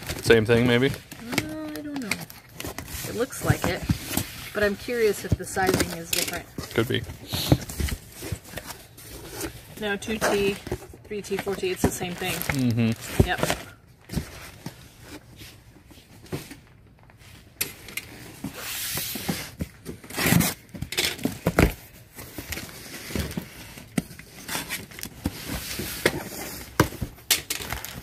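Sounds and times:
packing paper rustling: 0.0 - 15.5, 18.2 - 28.0
knocks and thumps on cardboard box: 3.2 - 4.3, 13.1 - 14.4.

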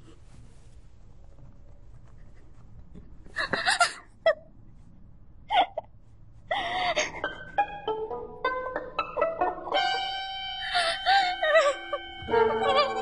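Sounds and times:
music of held notes: 7.4 - 13.0.

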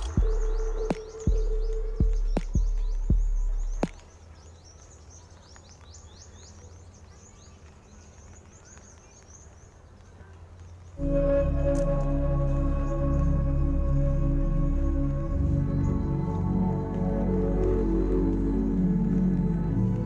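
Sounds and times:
low thumps: 0.0 - 4.1
small birds chirping: 0.0 - 20.0.

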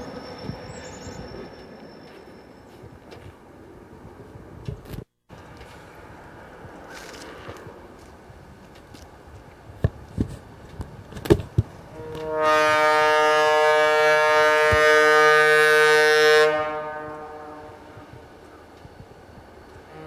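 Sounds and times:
locomotive air horn blast: 11.9 - 18.2.

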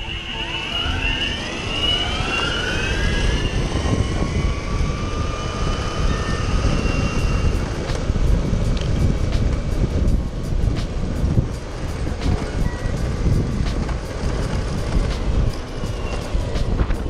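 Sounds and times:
electric motors whining: 0.0 - 8.1, 11.6 - 17.0
wheels rumbling on asphalt: 0.0 - 17.0
wind on microphone: 0.0 - 17.0.

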